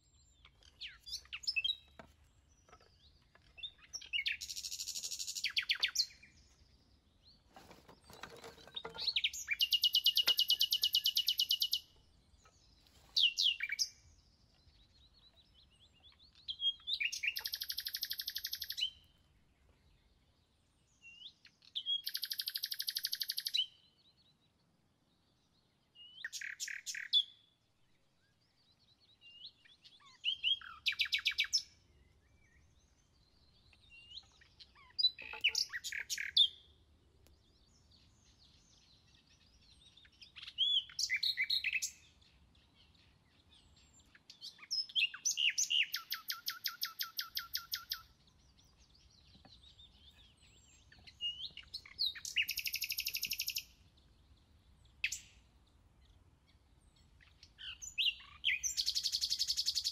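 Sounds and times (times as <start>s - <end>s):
songbird trilling: 0.2s - 6.3s, 8.0s - 11.9s, 13.2s - 14.0s, 16.0s - 19.0s, 21.8s - 23.7s, 26.2s - 27.3s, 33.7s - 36.6s, 40.0s - 42.0s, 43.6s - 48.1s, 49.0s - 53.8s, 57.2s - 59.9s.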